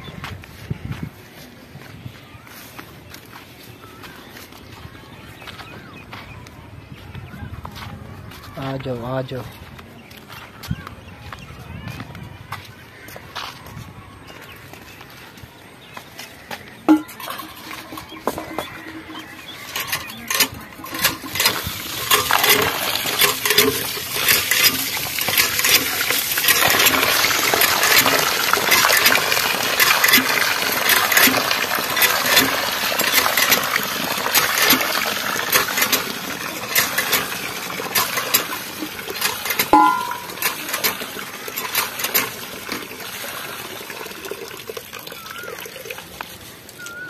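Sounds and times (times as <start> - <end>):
rice clinking: 16.9 - 46.2
water sloshing and pouring: 16.9 - 47.0.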